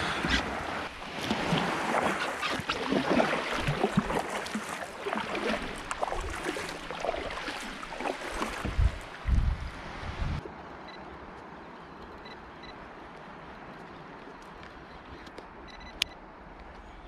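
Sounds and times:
water lapping against hull: 0.0 - 10.0.

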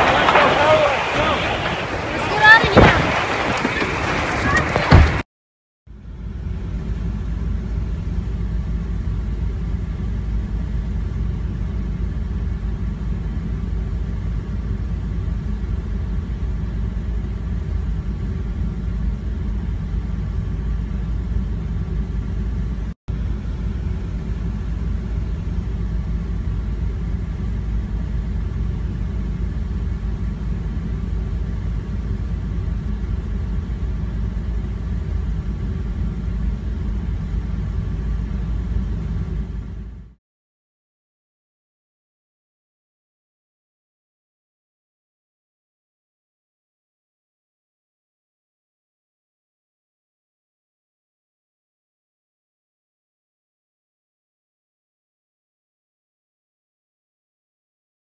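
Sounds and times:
car interior engine and road noise: 5.9 - 40.2.

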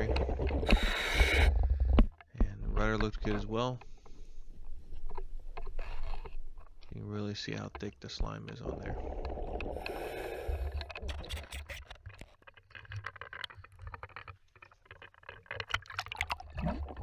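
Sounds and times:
regulator bubbles underwater: 7.8 - 11.8, 15.8 - 17.0.

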